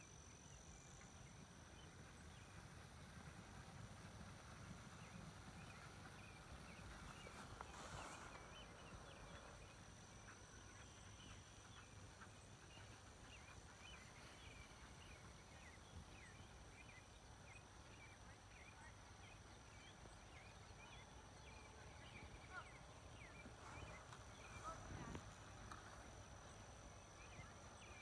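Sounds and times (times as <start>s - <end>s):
distant bird chirps: 5.0s - 28.0s.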